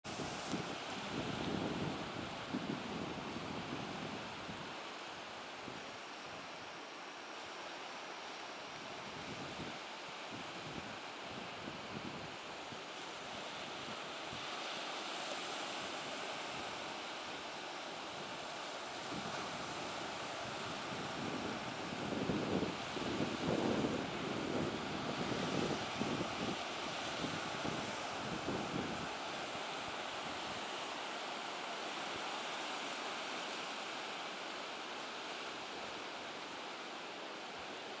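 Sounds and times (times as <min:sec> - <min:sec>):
wind noise on microphone: 0:00.0 - 0:06.5, 0:08.8 - 0:17.1, 0:18.1 - 0:30.8
waves washing onto beach: 0:00.0 - 0:38.0.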